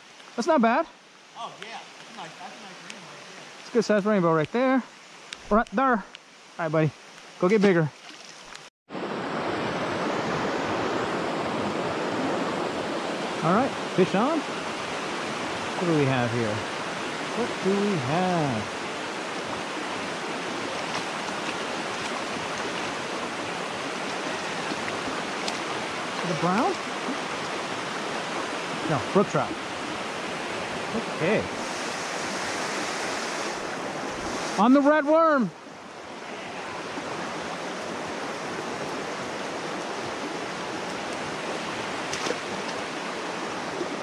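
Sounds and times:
stream water rushing: 0.0s - 44.0s
faint ticks: 5.3s - 6.3s.

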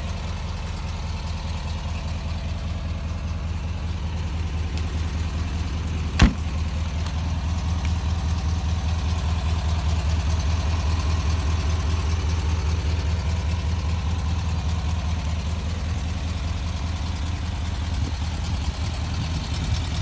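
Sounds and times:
engine idling: 0.0s - 20.0s
sharp knock: 6.2s - 6.6s.

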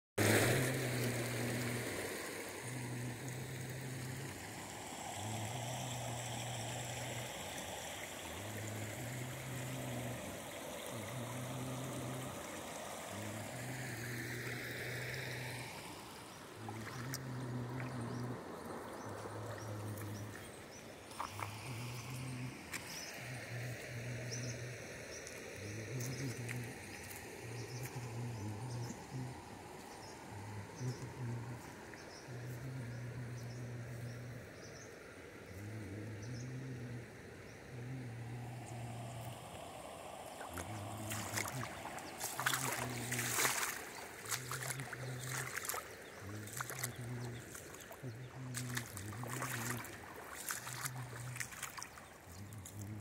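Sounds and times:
river water over stones: 0.2s - 53.0s
low hum: 35.5s - 53.0s.

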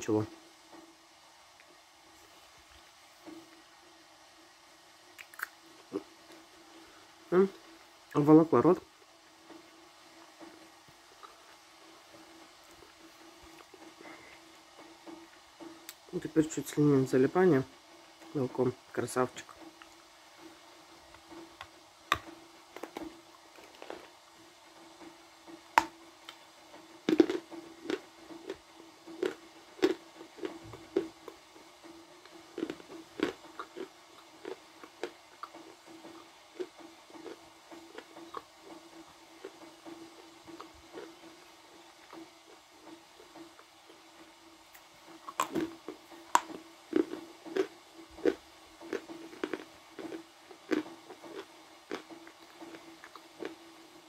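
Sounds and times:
steady low hum: 0.0s - 54.0s
person chewing crunchy clay: 5.2s - 6.1s, 22.1s - 24.2s, 27.0s - 39.6s, 40.2s - 44.0s, 44.7s - 53.7s.

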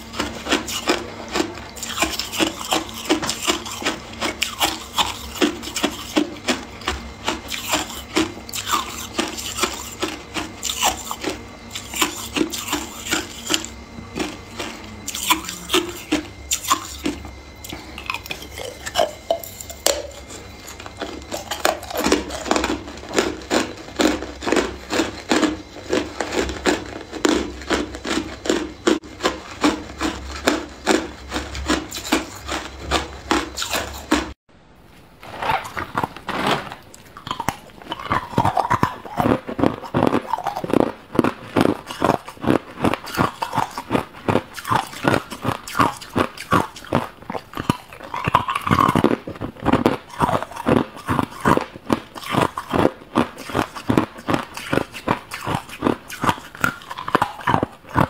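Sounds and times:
ice being chewed: 0.0s - 34.4s, 35.2s - 58.0s.

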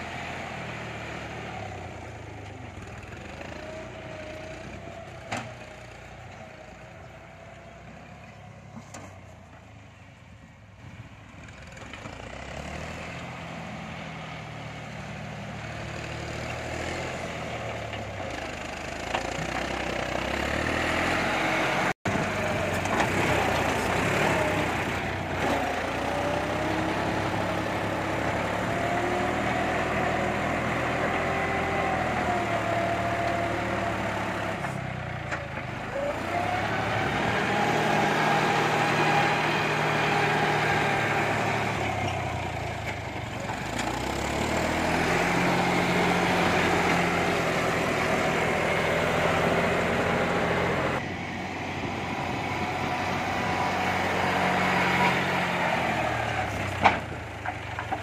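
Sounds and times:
tractor diesel engine running: 0.0s - 58.0s
engine whine: 19.2s - 58.0s.

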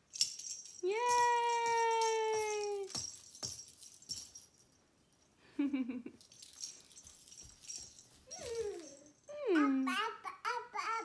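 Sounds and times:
toy rattle jingling: 0.0s - 5.3s, 6.2s - 9.4s
toddler vocal sound: 8.3s - 11.0s.

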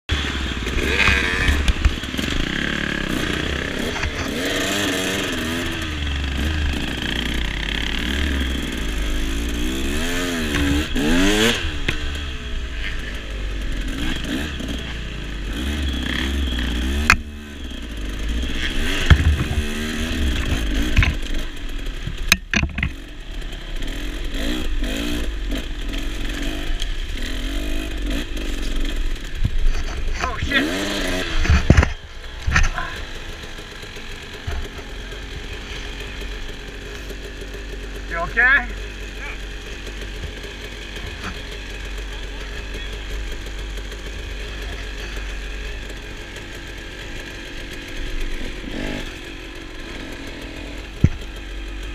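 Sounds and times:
dirt bike engines revving: 0.1s - 51.9s
bike knocks and clatter: 18.6s - 21.4s, 22.0s - 23.0s, 31.4s - 33.0s, 51.0s - 51.3s.

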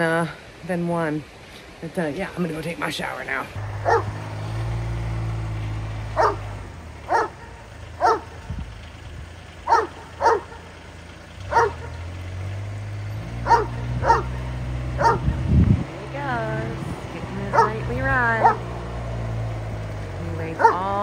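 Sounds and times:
vehicle engine humming: 0.0s - 21.0s
dog barking: 3.8s - 4.2s, 6.2s - 6.5s, 7.1s - 8.4s, 9.7s - 10.6s, 11.5s - 12.0s, 13.4s - 14.4s, 15.0s - 15.3s, 17.5s - 17.8s, 18.4s - 18.7s, 20.6s - 20.9s.

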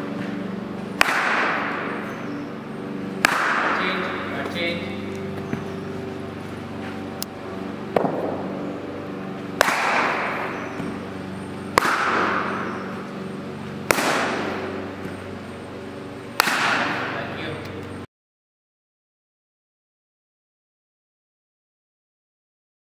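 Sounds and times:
steady low hum: 0.0s - 18.1s
cricket bat striking balls: 0.3s - 2.4s, 3.1s - 5.8s, 7.9s - 8.7s, 9.4s - 15.4s, 16.3s - 17.7s
loud cracks echoing through hall: 1.0s - 2.0s, 3.2s - 4.2s, 9.6s - 10.7s, 11.8s - 12.8s, 13.9s - 14.8s, 16.4s - 17.2s.

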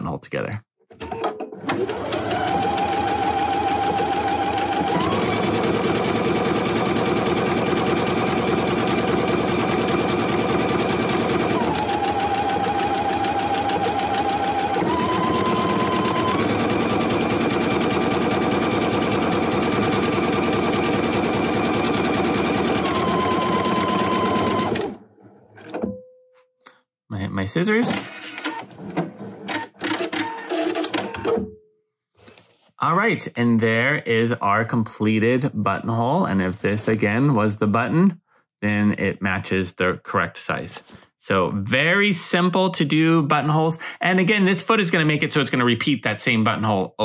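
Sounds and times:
sewing machine running: 1.0s - 25.0s, 29.5s - 31.3s.

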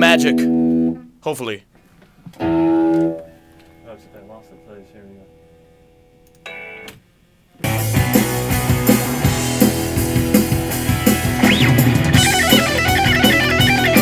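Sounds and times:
rock backing track with drums: 2.1s - 3.8s, 6.4s - 14.0s
electric guitar solo: 2.4s - 4.7s, 11.3s - 14.0s.

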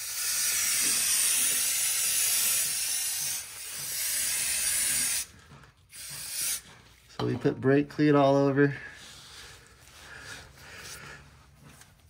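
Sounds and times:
aerosol spray hissing: 0.0s - 5.3s, 5.9s - 6.6s.

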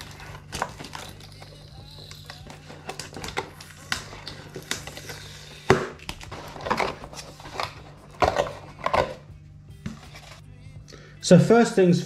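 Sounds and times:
plastic packaging crinkling: 0.0s - 9.1s.

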